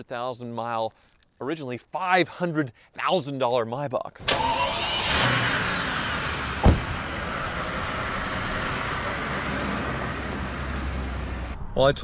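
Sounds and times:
car engine running: 4.3s - 11.6s
heavy thud: 6.6s - 7.2s.

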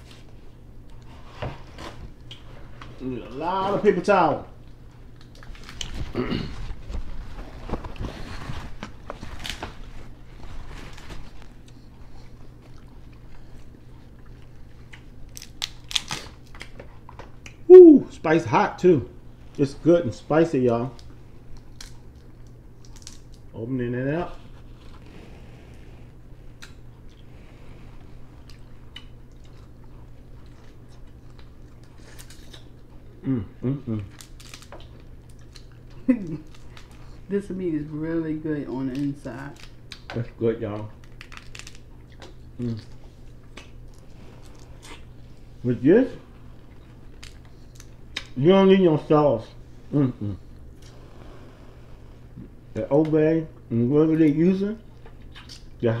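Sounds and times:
low steady hum: 0.0s - 56.0s
chewing: 10.9s - 17.6s, 26.5s - 27.4s, 28.0s - 33.2s, 34.0s - 37.2s, 41.0s - 45.5s, 54.9s - 55.8s
crab shells cracking: 14.9s - 16.8s, 21.0s - 23.5s, 34.1s - 35.8s, 41.0s - 42.8s
wet chewing: 41.0s - 45.5s, 54.9s - 55.8s.

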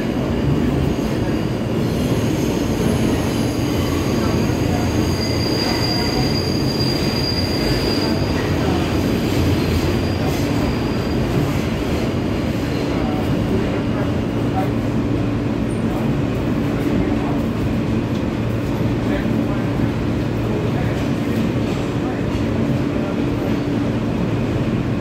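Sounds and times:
train wheels rumbling on rails: 0.0s - 25.0s
steel wheels squealing on rail: 0.2s - 13.8s.

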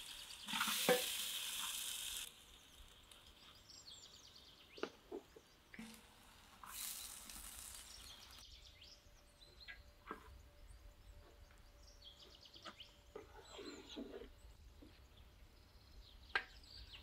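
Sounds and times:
water streaming through skimmer: 0.0s - 2.4s
birds chirping: 1.6s - 5.8s, 6.8s - 17.0s.

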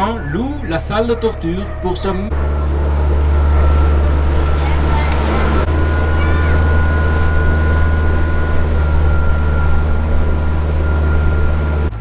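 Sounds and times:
faint high tone: 0.0s - 11.9s
boat motor running: 0.0s - 12.0s
water wash: 0.0s - 12.0s.

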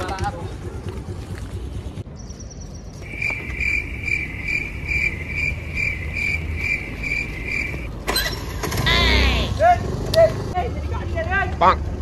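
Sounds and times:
high insect-like chirping: 3.0s - 7.9s.

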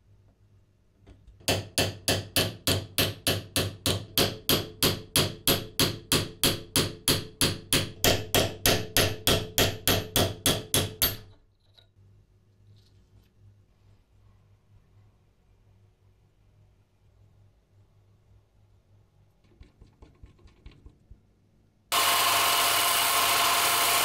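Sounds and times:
hammer tapping metal punch: 1.4s - 11.4s.

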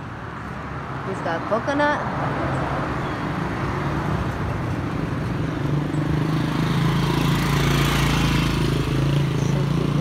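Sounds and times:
vehicle engine running: 5.1s - 10.0s.

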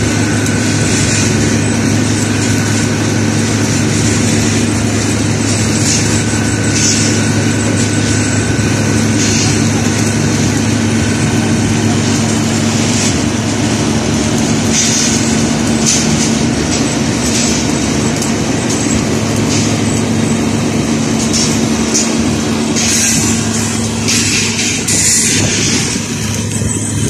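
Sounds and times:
diesel machinery droning: 0.0s - 27.0s.

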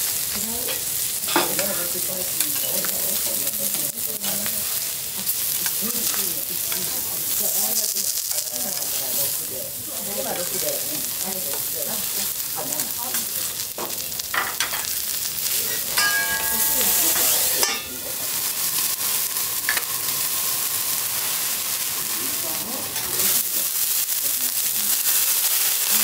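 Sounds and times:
food sizzling on a griddle: 0.0s - 26.0s
liquid hissing on hot steel: 0.0s - 26.0s
metal spatula scraping: 0.7s - 9.4s, 14.4s - 23.5s.

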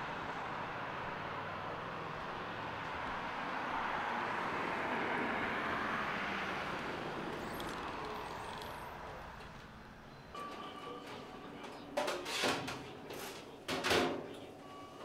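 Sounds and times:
car passing: 0.0s - 10.1s.

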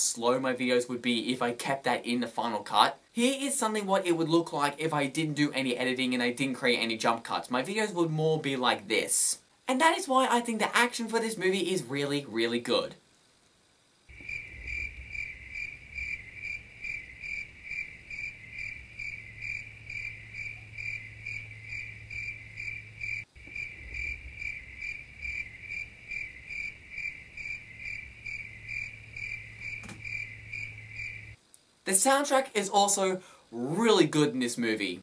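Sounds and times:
crickets chirping: 0.0s - 35.0s
low hum: 14.1s - 31.4s.

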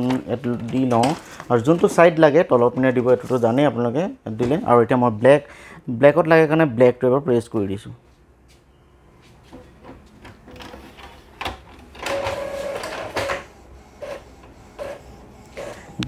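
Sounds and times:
printer motor whine: 11.9s - 16.0s.

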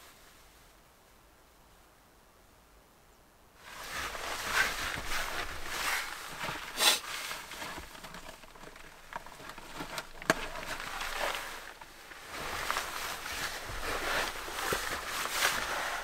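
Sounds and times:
jacket and clothing rustling: 3.6s - 16.0s
shuffling on a floor mat: 3.6s - 16.0s.

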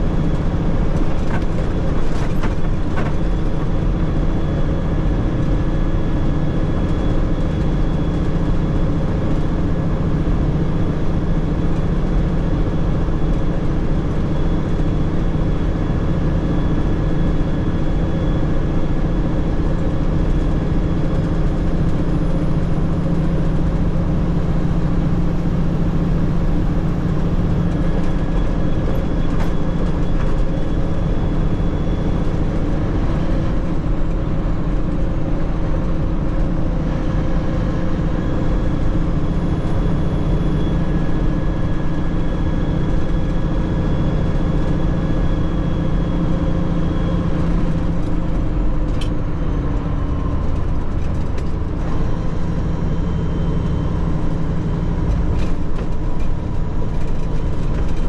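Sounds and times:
low hum: 0.0s - 58.0s
truck engine: 0.0s - 58.0s.

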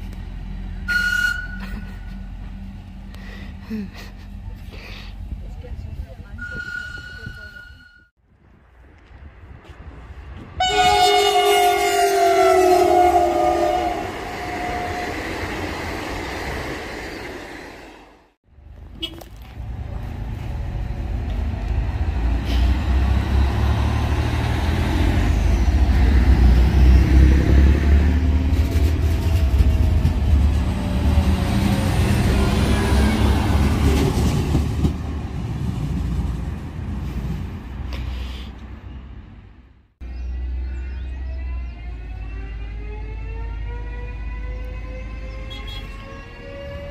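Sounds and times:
train rumbling past: 0.0s - 7.5s, 9.2s - 18.4s, 19.6s - 46.9s
two-note train horn: 10.6s - 15.0s.

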